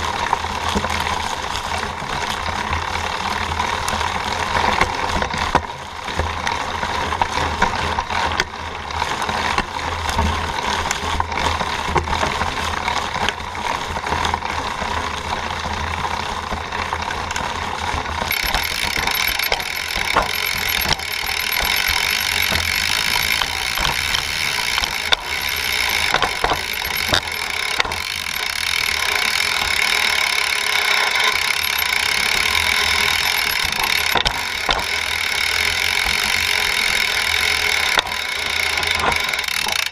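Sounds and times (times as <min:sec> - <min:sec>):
bike chain and frame rattling: 0:00.0 - 0:39.9
bike tyres on dirt trail: 0:00.0 - 0:39.9.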